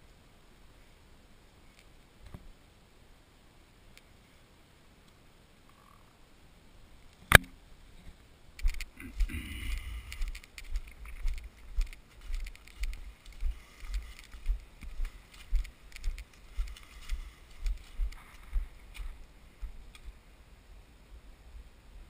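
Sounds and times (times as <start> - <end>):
light leaf crackles: 6.9 - 20.4
footsteps on forest trail: 8.6 - 20.1.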